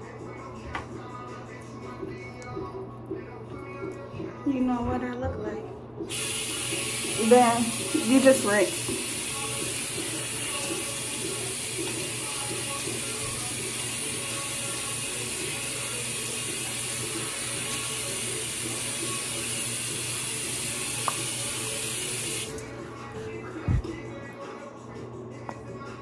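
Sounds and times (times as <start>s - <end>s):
tap running into a sink: 6.1s - 14.2s, 16.0s - 22.6s
face rinsed with water: 6.1s - 22.6s.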